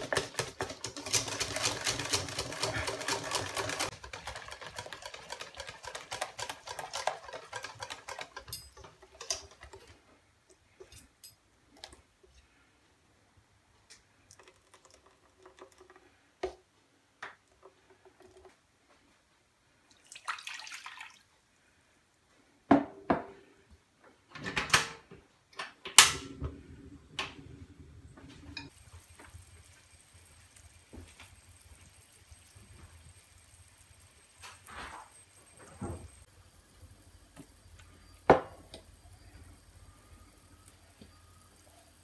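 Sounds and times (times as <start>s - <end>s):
water pouring into a pan: 19.9s - 21.3s, 28.7s - 36.2s
sugar syrup bubbling hiss: 28.1s - 42.0s.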